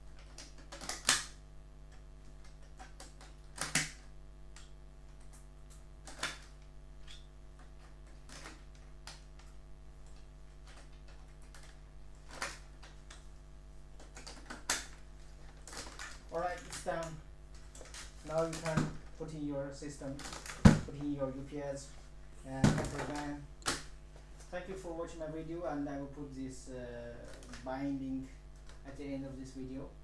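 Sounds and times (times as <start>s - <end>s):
steady low hum: 0.0s - 30.0s
plastic covers clicking on: 14.0s - 19.0s.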